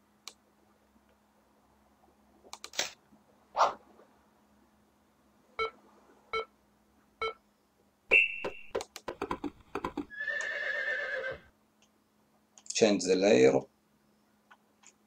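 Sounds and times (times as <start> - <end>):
horse whinny: 10.1 - 11.5.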